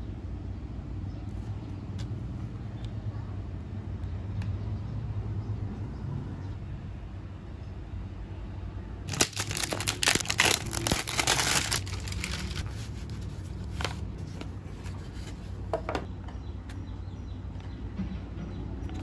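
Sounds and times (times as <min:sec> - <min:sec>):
plastic shrink-wrap crinkling: 0:09.1 - 0:14.0.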